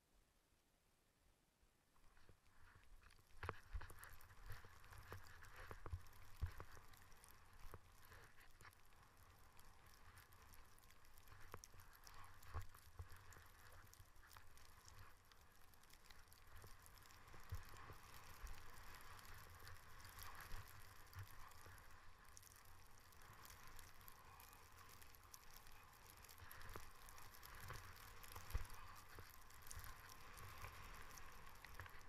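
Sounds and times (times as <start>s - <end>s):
skis hissing over snow: 22.6s - 32.0s.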